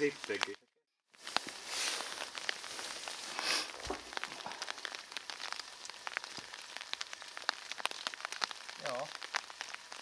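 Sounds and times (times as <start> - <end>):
light rain pattering: 0.0 - 0.6, 1.2 - 10.0.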